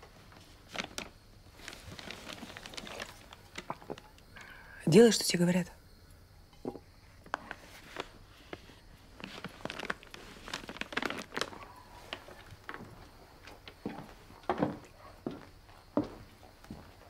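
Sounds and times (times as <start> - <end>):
paper wrapping rustling: 0.0 - 4.1, 7.3 - 12.9.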